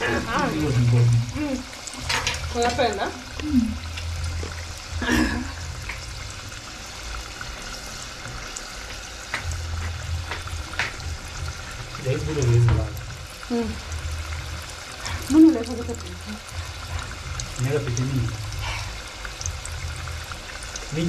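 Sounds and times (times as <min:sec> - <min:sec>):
oil sizzling and crackling: 0:00.0 - 0:21.0.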